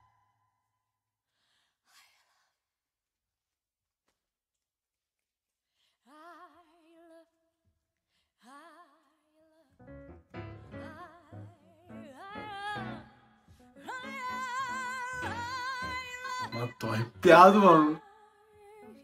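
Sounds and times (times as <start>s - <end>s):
piano chords: 9.8s - 18.0s
woman singing with vibrato: 13.8s - 19.0s.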